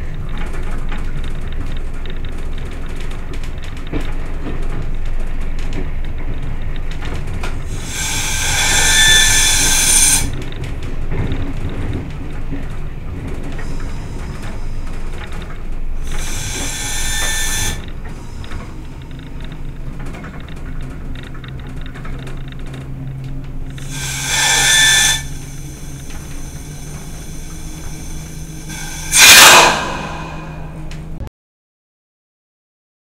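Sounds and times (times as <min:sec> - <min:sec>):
diesel engine humming: 0:22.9 - 0:31.2
bursts of hissing: 0:23.8 - 0:25.7, 0:27.0 - 0:30.8.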